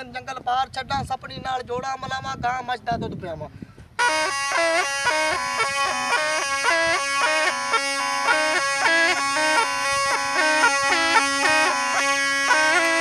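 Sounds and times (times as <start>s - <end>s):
reed pipe melody: 4.0s - 13.0s
steady reed drone: 4.0s - 13.0s.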